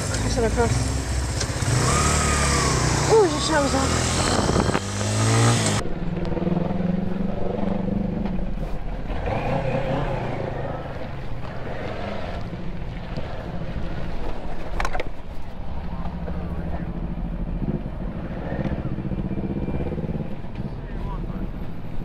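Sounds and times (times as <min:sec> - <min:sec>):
motorcycle engine at low revs: 0:00.0 - 0:13.2
road and traffic noise: 0:00.0 - 0:22.0.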